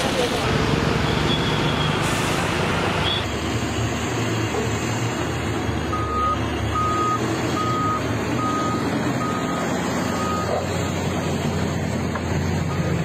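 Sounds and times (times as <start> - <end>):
heavy machinery diesel engines: 0.0 - 13.0
back-up alarm beeping: 5.9 - 10.6.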